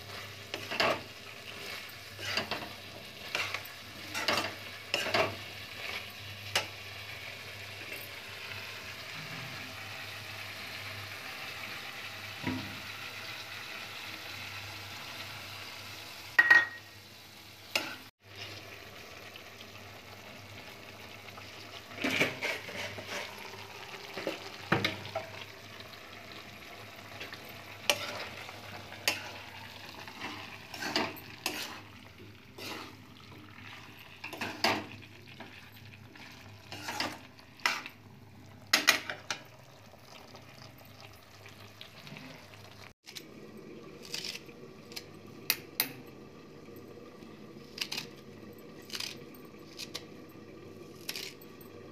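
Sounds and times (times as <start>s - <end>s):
metal ladle scraping a pan: 0.0s - 8.2s, 21.8s - 25.5s, 26.4s - 38.0s
faint sizzle: 0.0s - 51.9s
steel lid clink: 16.4s - 16.9s.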